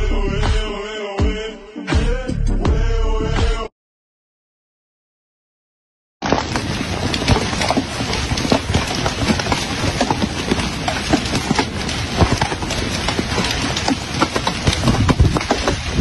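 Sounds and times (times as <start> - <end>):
hailstones rattling: 6.2 - 16.0.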